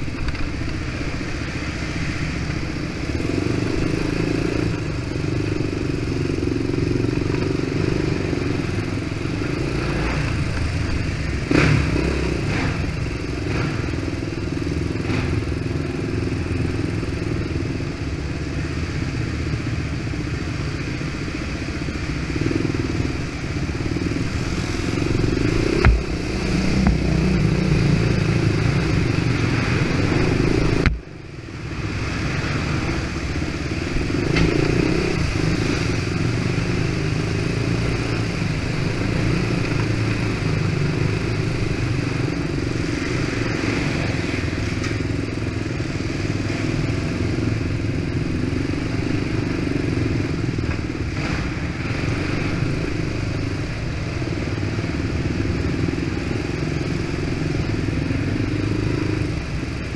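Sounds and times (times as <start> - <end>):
quad engine revving: 11.4 - 12.9.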